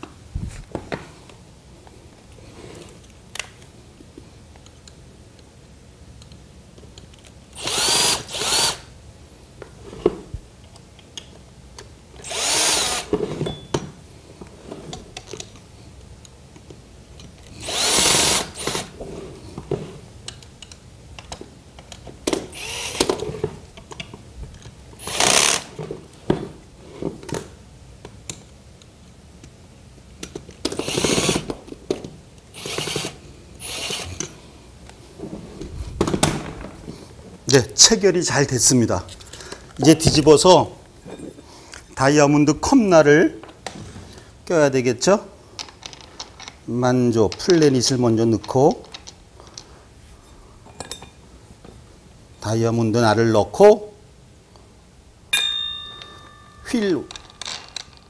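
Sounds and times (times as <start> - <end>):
cordless drill whirring: 7.6 - 8.9, 12.2 - 13.2, 17.5 - 19.0, 22.5 - 23.4, 25.0 - 25.7, 30.8 - 31.5, 32.6 - 34.2
handling clicks and clatter: 56.0 - 58.0.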